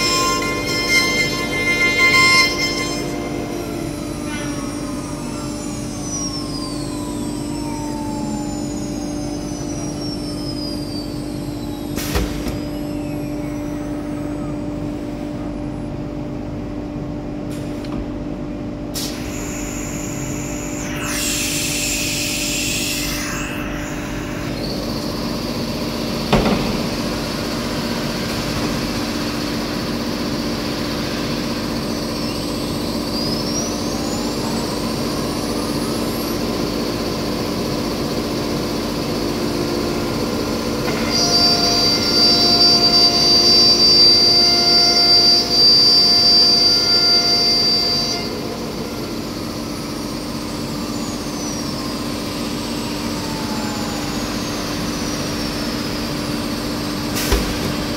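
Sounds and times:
router spindle whine: 0:00.0 - 0:57.9
steady machine hum: 0:00.0 - 0:57.9.

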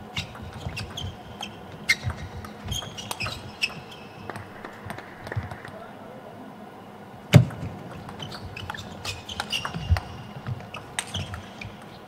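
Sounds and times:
high squeak: 0:00.1 - 0:04.3, 0:08.2 - 0:11.8
table tennis ball clicking: 0:00.2 - 0:05.8, 0:07.4 - 0:12.0.

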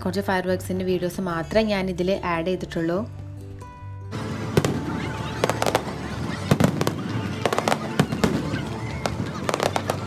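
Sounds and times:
steady background din: 0:04.1 - 0:10.0
fireworks bangs and crackles: 0:04.2 - 0:10.0.

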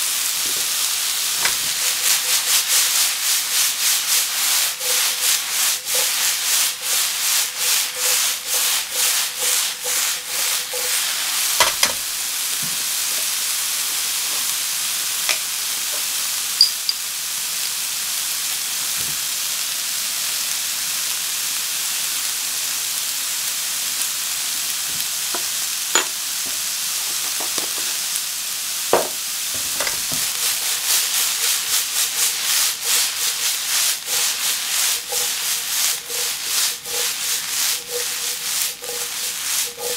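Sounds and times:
vegetables sizzling in a wok: 0:00.0 - 0:39.9
wok tossing swishes: 0:00.4 - 0:12.2, 0:29.6 - 0:39.9.

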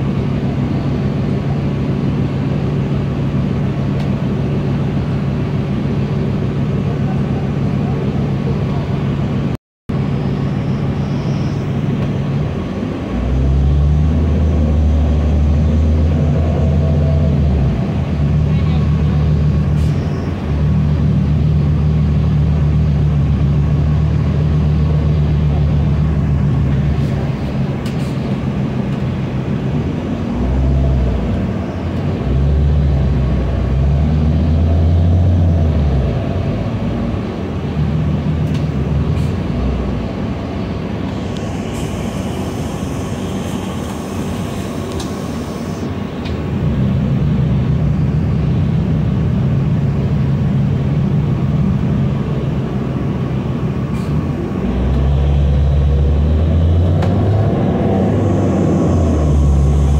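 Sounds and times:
bus engine drone: 0:00.0 - 0:59.9
air hiss: 0:41.1 - 0:46.1.

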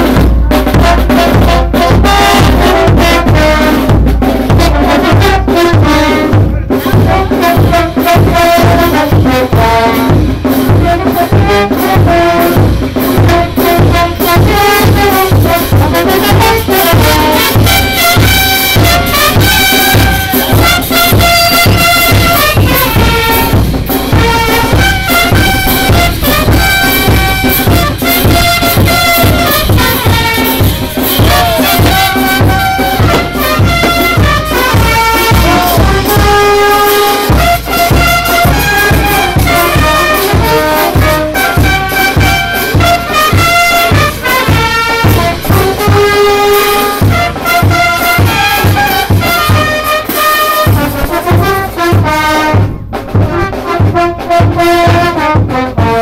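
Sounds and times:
brass band playing dance tune: 0:00.0 - 0:56.0.

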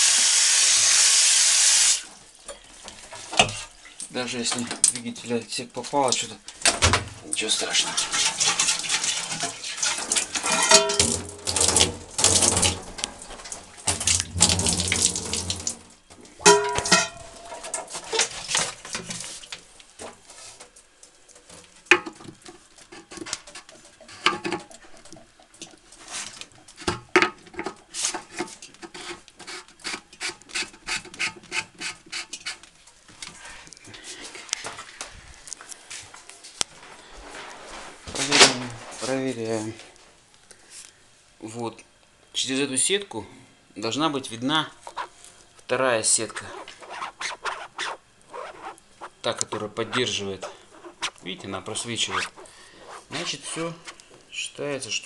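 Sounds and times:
water splashing on plastic: 0:07.7 - 0:20.2.

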